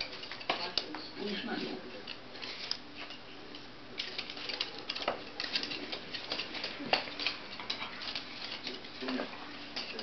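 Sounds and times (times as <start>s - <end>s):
puppy claws clicking on wooden floor: 2.1s - 10.0s.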